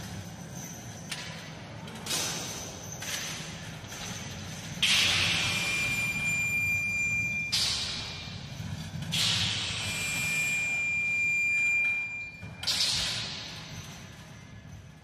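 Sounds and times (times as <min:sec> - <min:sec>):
thin high ringing tone: 0:04.8 - 0:14.8.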